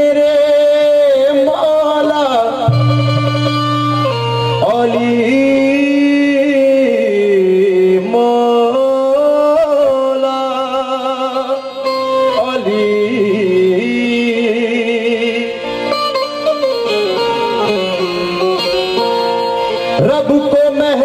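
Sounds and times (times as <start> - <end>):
harmonium chords: 2.4 - 8.1, 11.1 - 21.0.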